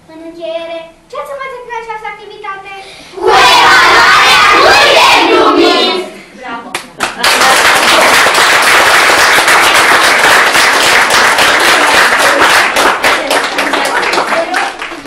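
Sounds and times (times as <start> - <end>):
audience clapping: 6.7 - 15.0.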